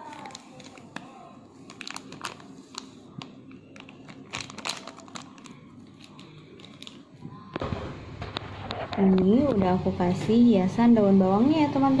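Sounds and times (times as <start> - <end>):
small crackles and clicks: 0.0 - 1.1
plastic sachet crinkling: 0.0 - 7.1.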